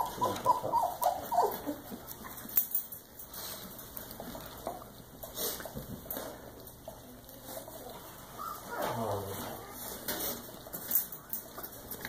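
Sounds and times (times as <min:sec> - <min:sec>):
puppies whimpering: 0:00.0 - 0:02.4, 0:08.3 - 0:09.9.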